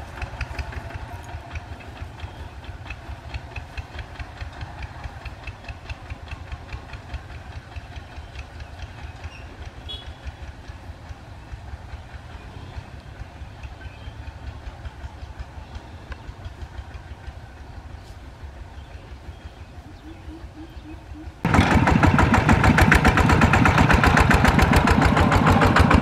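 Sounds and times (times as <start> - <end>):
tractor diesel engine chugging: 0.0 - 26.0.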